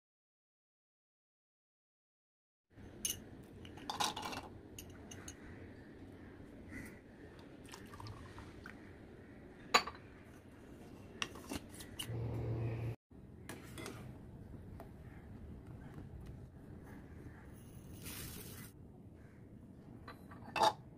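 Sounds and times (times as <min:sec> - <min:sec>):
cups and containers clinking: 0:02.9 - 0:05.4, 0:20.0 - 0:20.9
steady low hum: 0:12.1 - 0:18.0.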